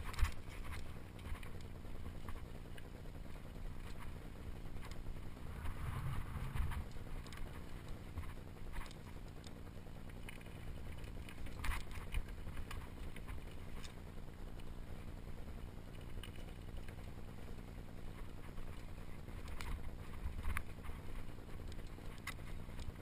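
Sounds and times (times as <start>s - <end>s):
wind buffeting microphone: 5.3s - 7.2s.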